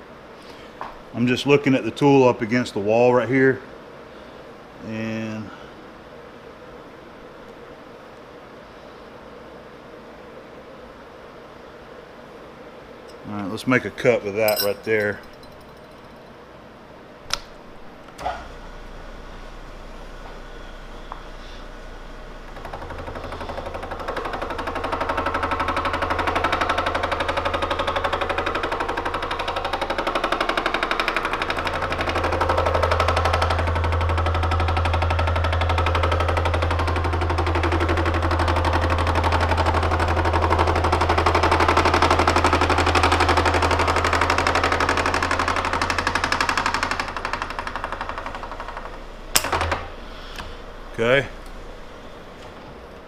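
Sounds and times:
spindle low hum: 12.4s - 41.7s, 47.0s - 53.0s.

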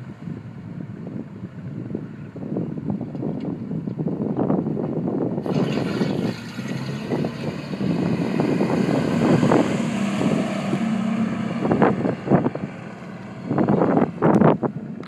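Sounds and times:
wind noise on microphone: 0.0s - 15.0s
pickup truck driving past: 5.4s - 15.0s.

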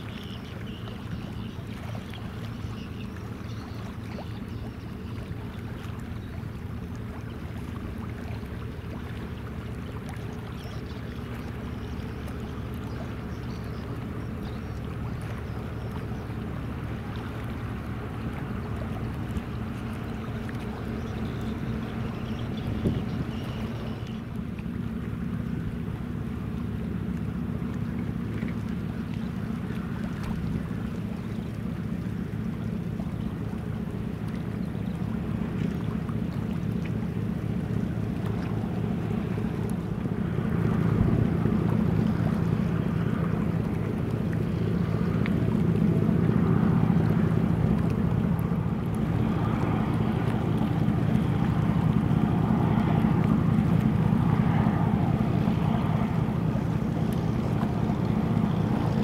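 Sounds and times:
ship diesel engine droning: 0.0s - 59.0s
water rushing along hull: 0.0s - 59.0s.

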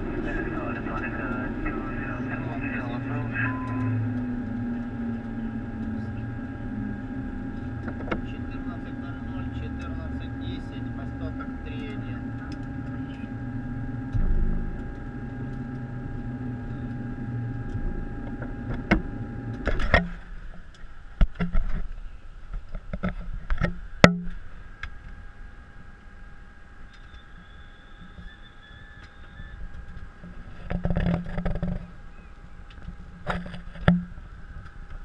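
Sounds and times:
low rumble: 0.0s - 21.3s
steady cockpit hum: 0.0s - 35.0s.

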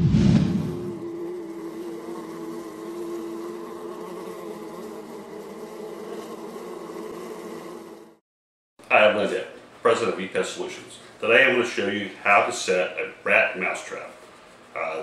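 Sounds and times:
insect buzzing drone: 0.4s - 8.2s.

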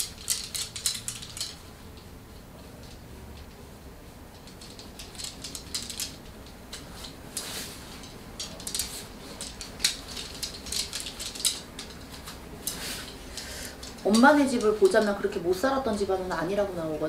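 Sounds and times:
small objects clicking on a desk: 0.0s - 1.6s, 4.4s - 15.2s.

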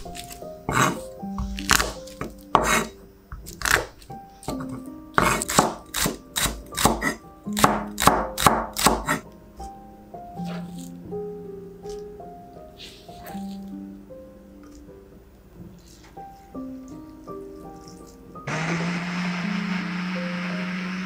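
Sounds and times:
knife chopping on wooden board: 0.0s - 9.2s
soft background music: 0.0s - 18.5s.

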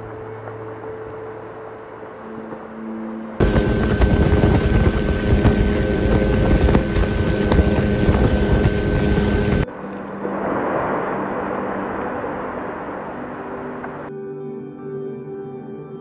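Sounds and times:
aircraft engine drone: 3.2s - 14.1s
rushing wind: 3.3s - 14.1s.

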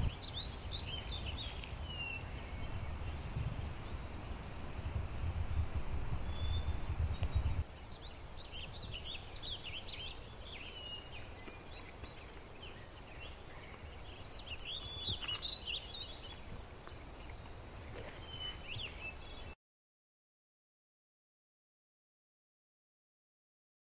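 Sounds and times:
songbirds chirping: 0.0s - 5.4s, 6.2s - 19.6s
faint outdoor hiss: 0.0s - 19.6s.

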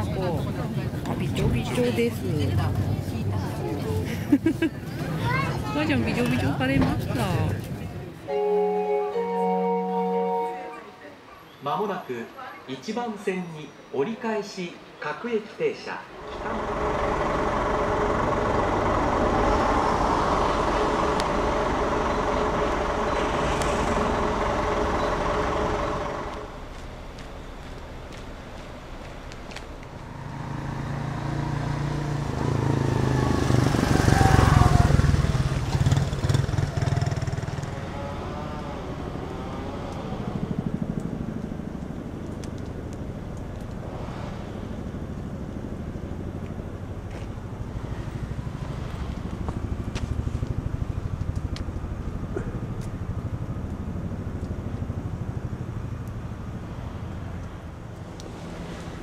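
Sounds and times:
low traffic hum: 0.0s - 59.0s
vehicle passing with whine: 16.2s - 59.0s.

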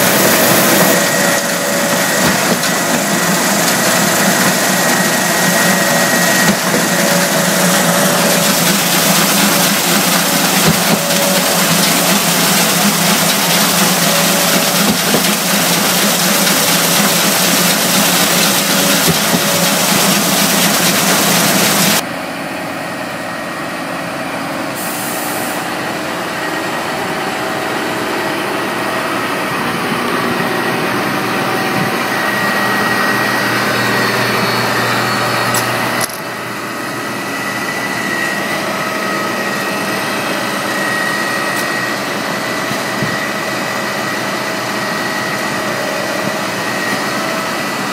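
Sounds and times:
wet concrete pouring: 0.0s - 22.0s
diesel engines running: 0.0s - 47.9s.

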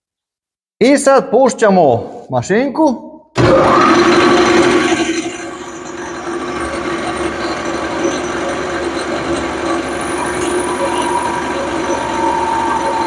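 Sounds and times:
boring machine whirring: 3.4s - 13.0s.

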